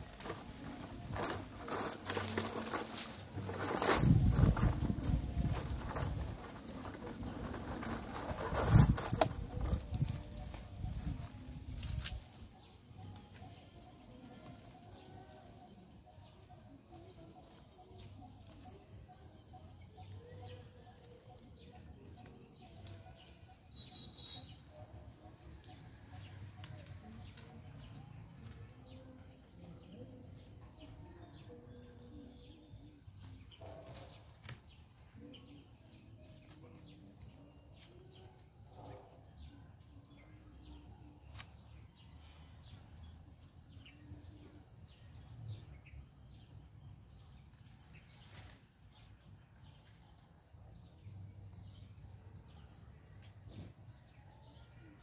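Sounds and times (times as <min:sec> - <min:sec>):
birds chirping: 0:00.0 - 0:55.0
branches snapping and being cut: 0:11.7 - 0:12.4, 0:33.8 - 0:34.7, 0:41.3 - 0:41.6.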